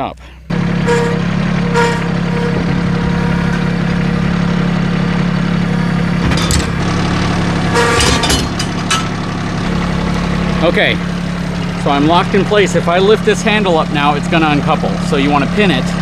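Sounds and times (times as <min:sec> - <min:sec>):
tractor engine idling: 0:00.0 - 0:16.0
metal clanks of hitch coupler: 0:06.2 - 0:09.3.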